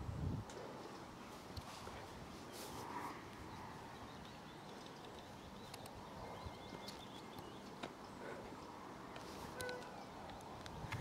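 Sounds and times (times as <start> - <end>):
wind on microphone: 0.0 - 0.6, 10.6 - 11.0
faint bird chirps: 3.4 - 8.8.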